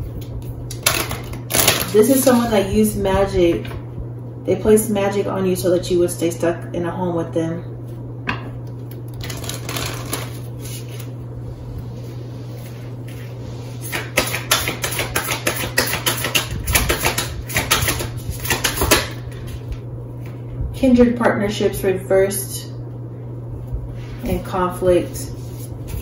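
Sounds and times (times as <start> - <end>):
steady low hum: 0.0 - 26.0
cards shuffling: 9.2 - 11.1, 13.9 - 19.1.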